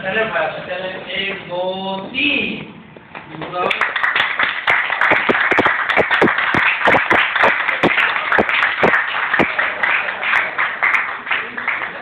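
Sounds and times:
people clapping: 3.4s - 12.0s.

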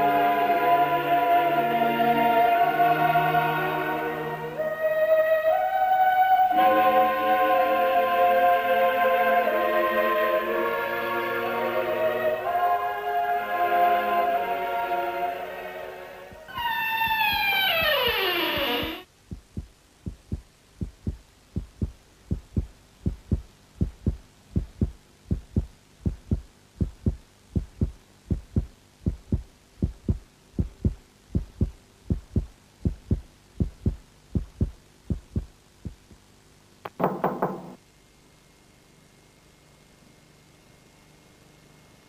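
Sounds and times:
heartbeat thumps: 16.3s - 36.2s.

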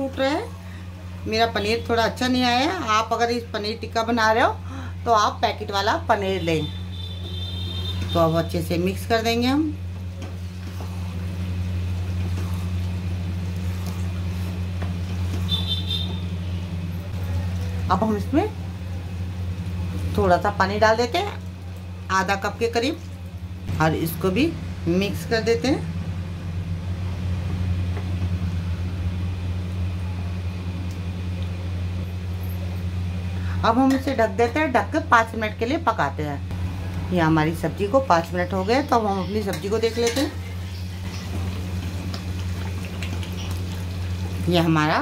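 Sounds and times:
steady low hum: 0.0s - 45.0s
wooden spatula scraping pan: 12.1s - 16.2s.

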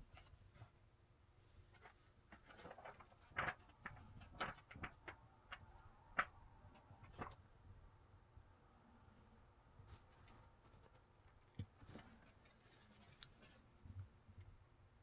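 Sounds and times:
book pages rustling: 1.5s - 7.4s, 9.9s - 13.8s.

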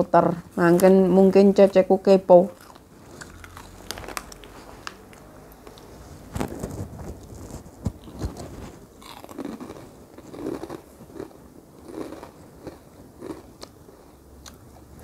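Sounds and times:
person chewing crunchy crackers: 2.5s - 5.9s, 6.5s - 14.8s.

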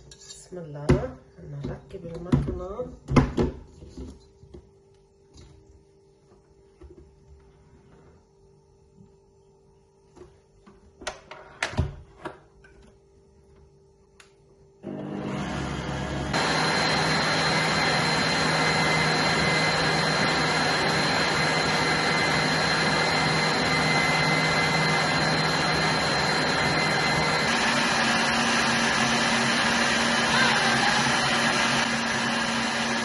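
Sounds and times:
stand mixer whisking: 14.9s - 33.0s.

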